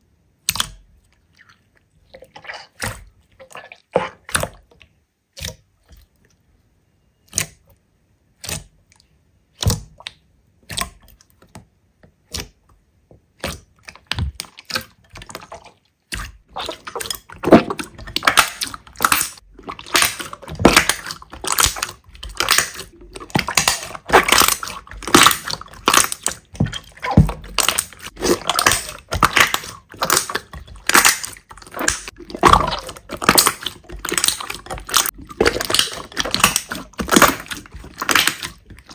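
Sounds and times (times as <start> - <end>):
slime crackling: 13.4 - 38.9
slime clicking and popping: 16.1 - 38.9.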